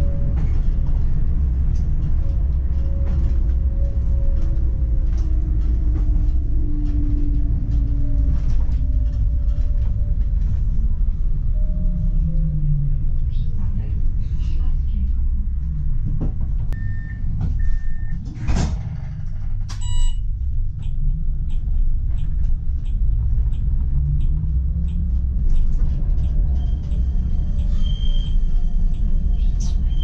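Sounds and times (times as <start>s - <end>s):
tram rumble: 0.0s - 30.0s
short electronic beeps: 16.8s - 18.2s, 19.8s - 20.2s.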